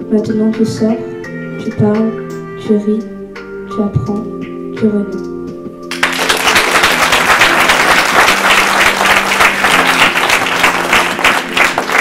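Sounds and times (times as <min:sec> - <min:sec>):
soft background music: 0:00.0 - 0:12.0
audience applauding: 0:05.9 - 0:12.0.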